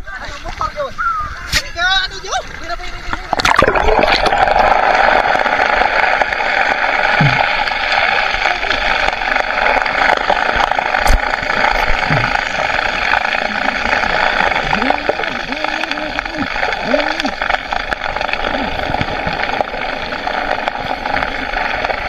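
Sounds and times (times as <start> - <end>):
muffled underwater noise: 0.0 - 22.0.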